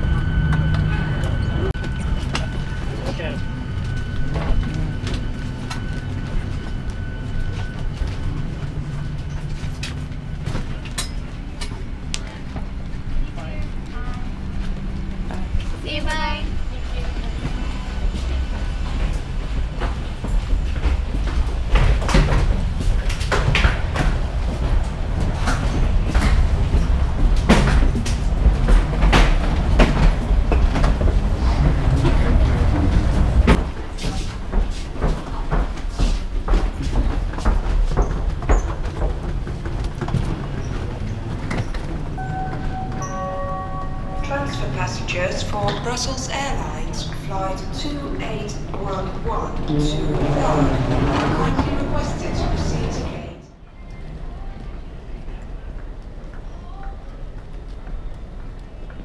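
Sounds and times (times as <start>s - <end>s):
passengers' clicks and knocks: 0.0s - 53.4s
low aircraft cabin hum: 0.0s - 53.6s
steady low rumble: 0.0s - 56.4s
suitcase wheels rolling: 0.2s - 53.4s
footsteps: 0.4s - 53.4s
thin high tone: 42.2s - 45.1s.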